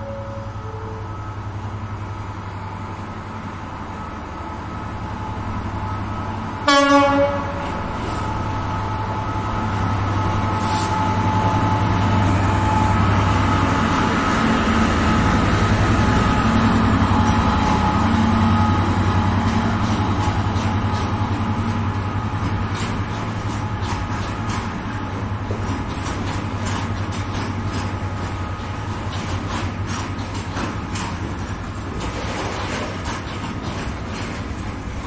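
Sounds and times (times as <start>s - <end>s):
train horn blast: 0.0s - 1.3s, 6.6s - 8.2s
diesel locomotive engine running: 0.0s - 35.0s.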